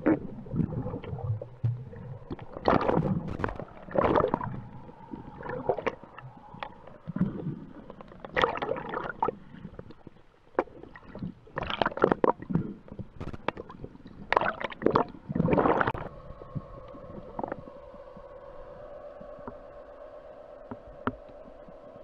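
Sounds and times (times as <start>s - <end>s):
underwater rustling and knocking: 0.0s - 18.4s, 20.6s - 21.8s
faint steady hum: 0.0s - 22.0s.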